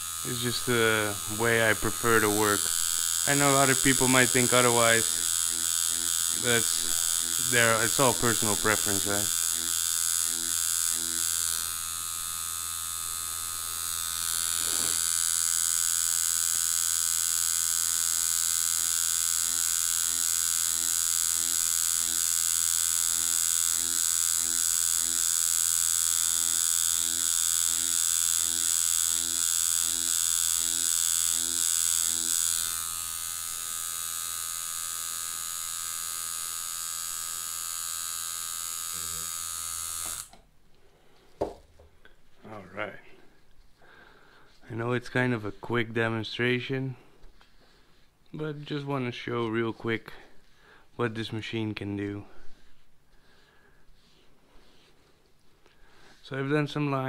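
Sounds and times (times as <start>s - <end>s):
tattoo machine buzzing: 0.0s - 40.4s.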